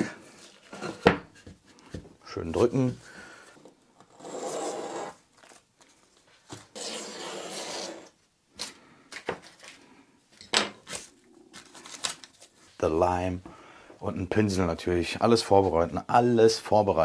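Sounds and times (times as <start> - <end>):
knife blade scraping through tape: 4.1 - 5.2, 6.6 - 8.2.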